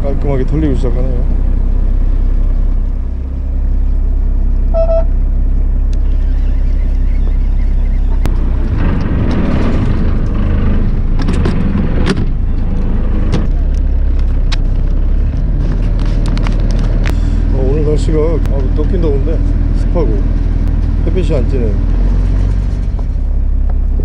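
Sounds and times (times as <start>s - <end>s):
boat engine humming: 0.0s - 24.0s
short beep: 4.7s - 5.2s.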